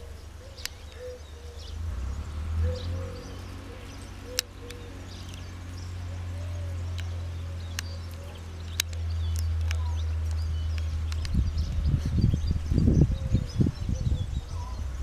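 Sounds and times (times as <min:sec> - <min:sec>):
sharp clicks: 0:06.9 - 0:11.4.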